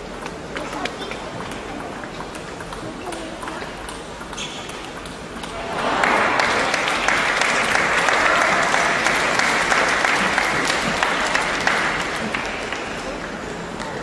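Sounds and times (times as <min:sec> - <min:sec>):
crowd applauding: 0:05.5 - 0:14.0.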